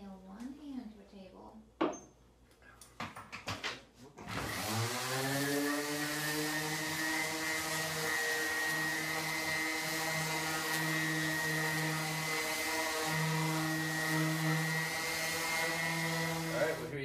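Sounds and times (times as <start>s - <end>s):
orbital sander sanding wood: 4.3s - 17.0s.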